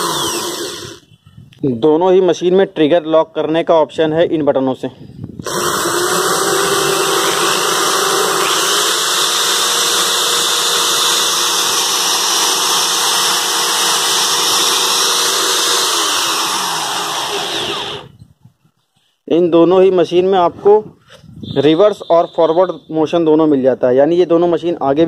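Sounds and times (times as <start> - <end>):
electric drills whining: 0.0 - 1.1, 5.4 - 18.2.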